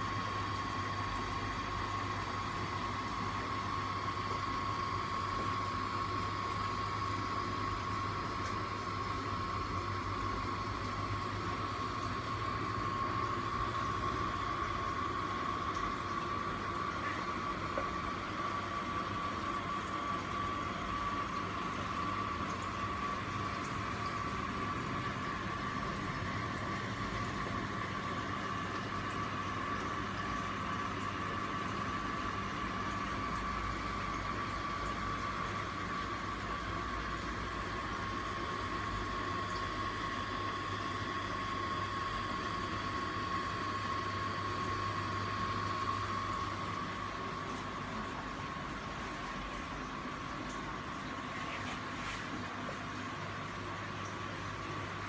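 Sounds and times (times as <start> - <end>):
aquarium pumps humming: 0.0 - 55.0.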